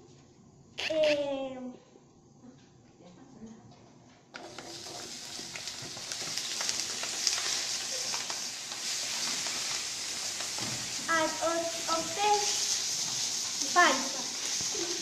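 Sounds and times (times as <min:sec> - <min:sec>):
bacon sizzling in a frying pan: 0:04.4 - 0:15.0.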